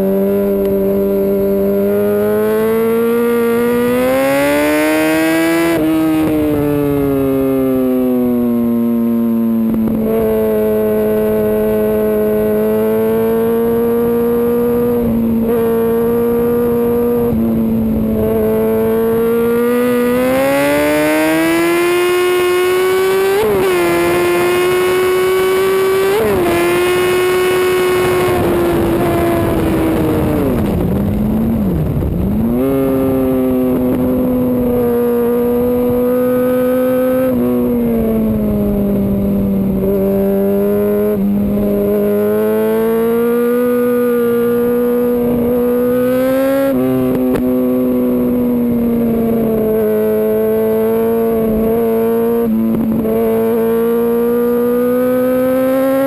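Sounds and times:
motorcycle engine at high revs: 0.0 - 56.0
wind rush: 26.3 - 36.1.

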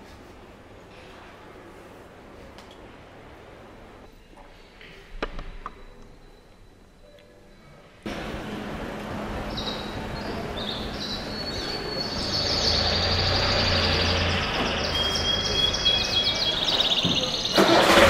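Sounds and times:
city street noise: 7.6 - 18.0
canaries trilling and chirping: 9.4 - 17.6.

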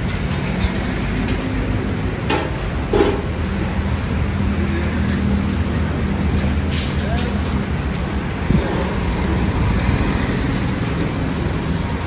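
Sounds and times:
machine humming: 3.6 - 12.0.

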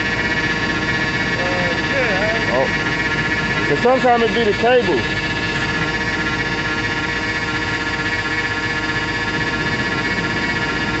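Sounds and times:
engine idling: 0.0 - 11.0
steady high whine: 0.0 - 11.0.

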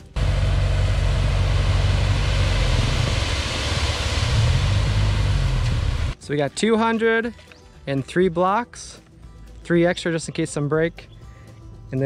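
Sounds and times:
truck engine running: 0.0 - 6.2
gravel sliding out: 1.1 - 6.2.

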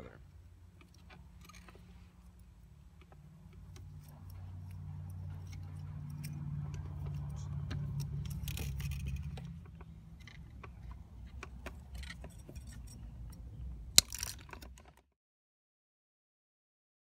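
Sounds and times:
pliers twisting wire clicks: 0.8 - 14.8.

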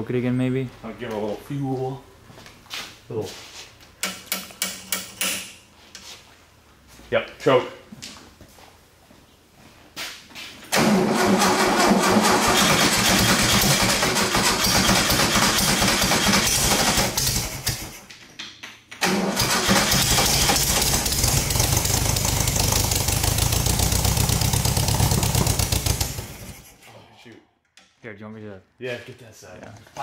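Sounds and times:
air-cooled engine starting and running: 10.7 - 18.0, 19.0 - 26.9.

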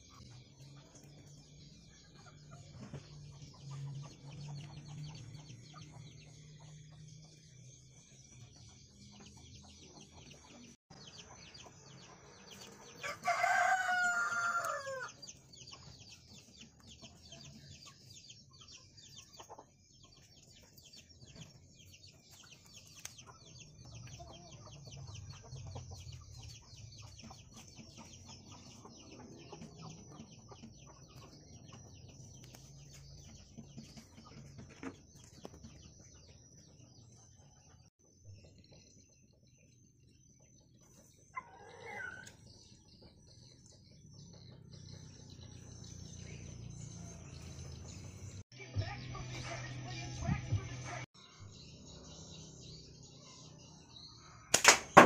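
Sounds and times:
rooster crowing: 13.0 - 15.2.

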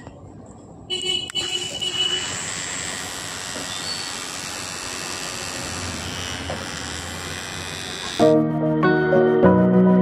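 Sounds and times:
faint high whine: 1.4 - 8.2
small motor propeller whirring: 1.8 - 8.3.

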